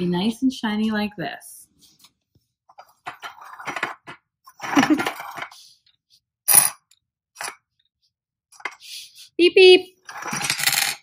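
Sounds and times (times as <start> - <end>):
ceramic pieces knocking and scraping: 2.7 - 5.6, 10.0 - 11.0.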